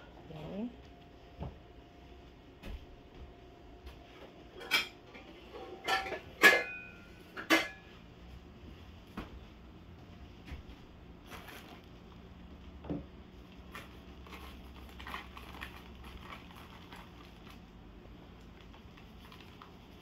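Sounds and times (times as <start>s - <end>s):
paper bag rustling: 11.2s - 12.6s, 13.4s - 20.0s.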